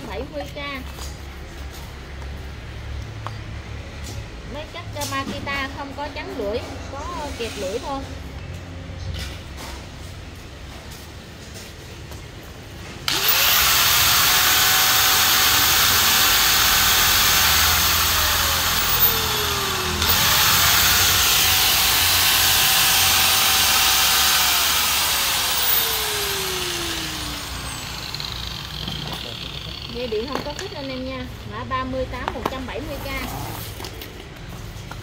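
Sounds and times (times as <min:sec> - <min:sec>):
angle grinder whining: 0:13.0 - 0:31.3.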